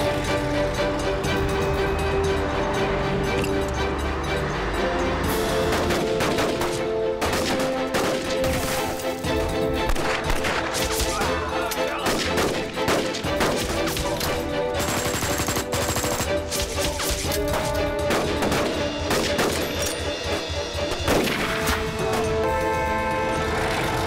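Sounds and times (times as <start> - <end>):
dramatic film music: 0.0 - 24.0
rapid rifle gunfire: 12.0 - 14.0, 14.7 - 17.2.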